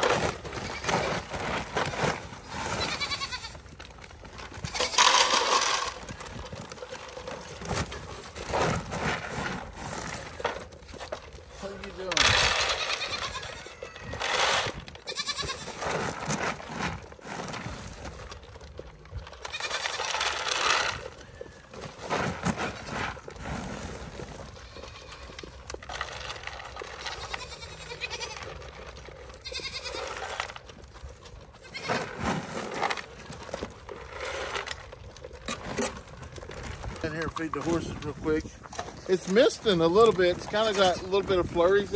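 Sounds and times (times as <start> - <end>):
goats bleating: 2.5 - 3.7, 12.5 - 16.2, 24.5 - 25.7, 26.8 - 30.4.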